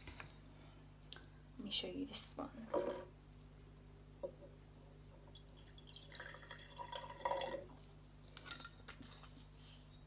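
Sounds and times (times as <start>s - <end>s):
liquid pouring into glass jar: 5.3s - 7.8s.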